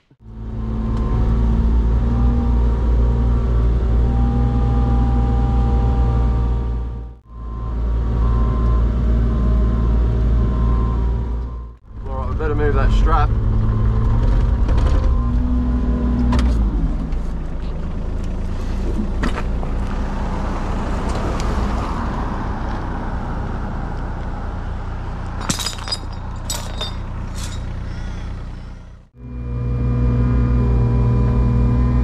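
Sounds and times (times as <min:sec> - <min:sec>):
diesel engine running: 0:00.2 - 0:32.0
sharp metal clanks: 0:25.4 - 0:27.8.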